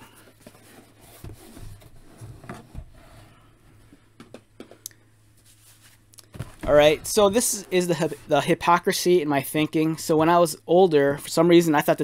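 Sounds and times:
low steady hum: 0.0s - 12.0s
handling knocks and scuffs: 5.4s - 7.6s.

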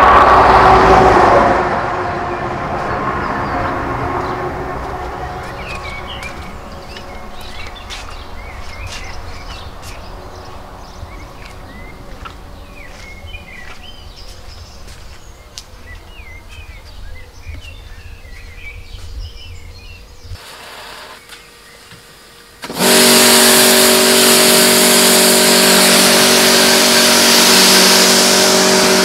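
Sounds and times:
steady low rumble: 0.0s - 20.4s
small birds chirping: 2.8s - 22.4s.

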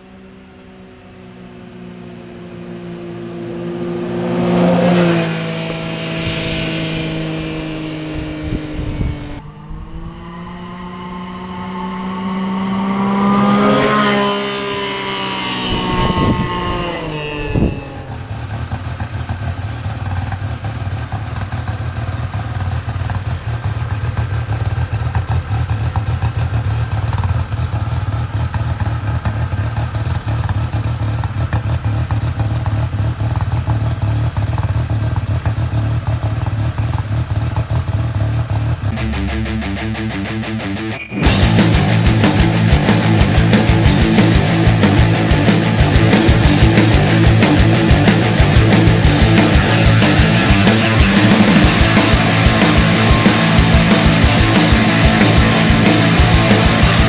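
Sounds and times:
off-road vehicle passing by: 0.0s - 39.1s, 40.0s - 57.0s
engine running steadily close up: 12.7s - 39.0s, 41.3s - 57.0s.

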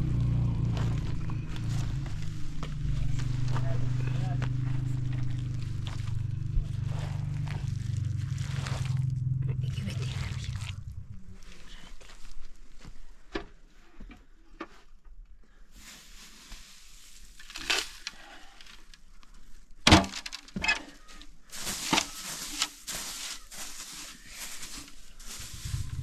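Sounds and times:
rustling crackling noise: 0.1s - 12.8s, 21.5s - 26.0s
knocks and cracks: 19.8s - 20.6s.

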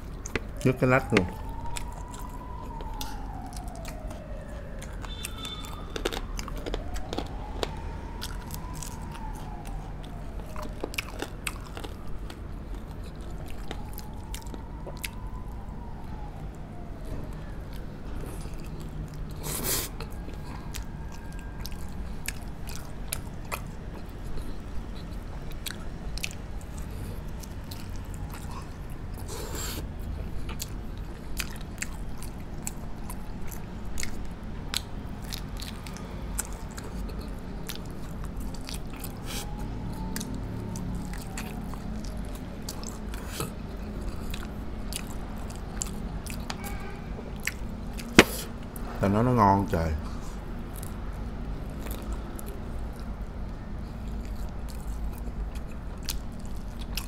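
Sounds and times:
person chewing food: 0.0s - 48.9s, 50.0s - 57.0s.

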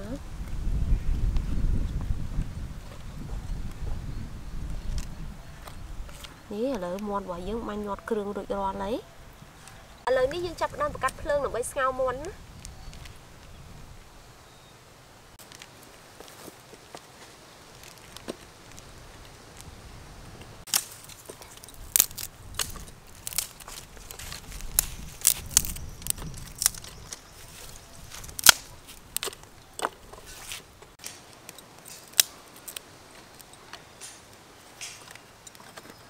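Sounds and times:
twig fire crackling and popping: 4.6s - 7.2s, 9.6s - 14.1s, 15.4s - 36.0s.

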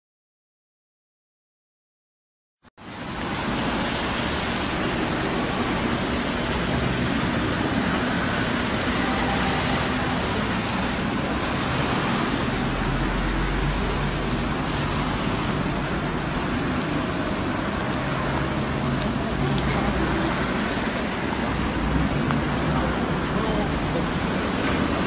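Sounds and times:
low street rumble: 2.8s - 25.0s
street noise rushing hiss: 2.8s - 25.0s.

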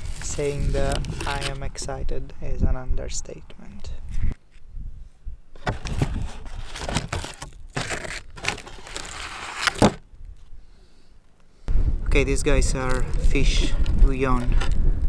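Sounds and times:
cardboard tray crinkling: 5.6s - 10.0s.

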